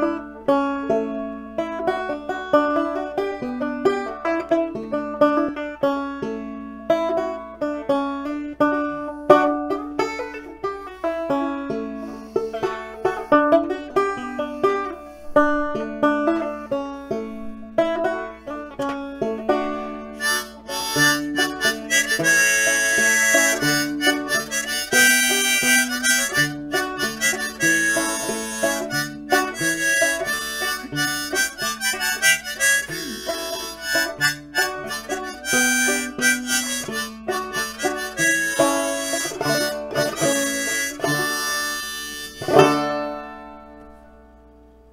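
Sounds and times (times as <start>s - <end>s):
banjo accompaniment: 0.0s - 44.9s
harmonica playing: 8.7s - 16.4s, 19.6s - 43.4s.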